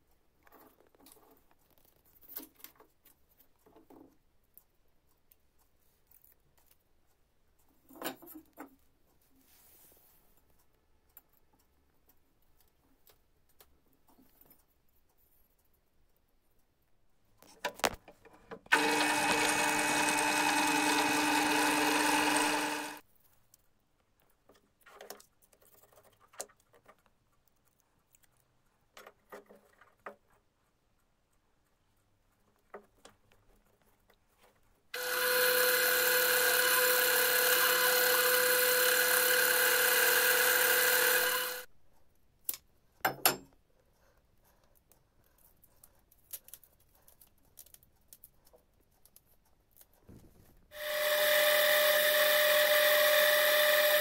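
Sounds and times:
power tool motor running: 18.7 - 23.0, 35.0 - 41.7, 50.8 - 54.0.

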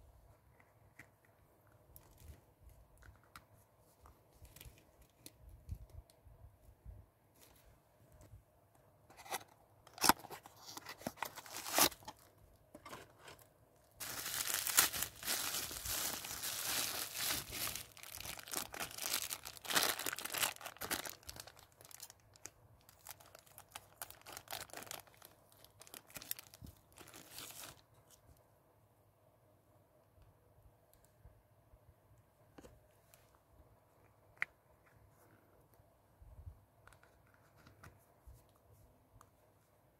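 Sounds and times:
plastic bag crinkling and tearing: 10.0 - 12.3, 14.0 - 27.8.

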